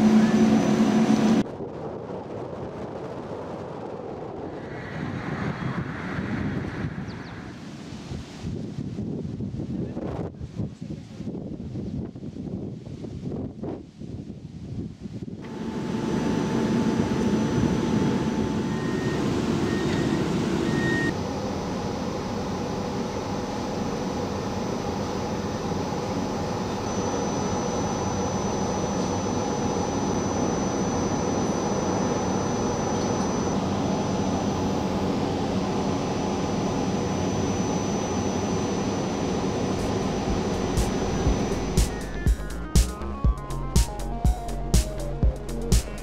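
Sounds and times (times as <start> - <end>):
tram running noise: 0.0 - 1.4, 39.4 - 43.6
faint electrical whines: 15.4 - 44.7.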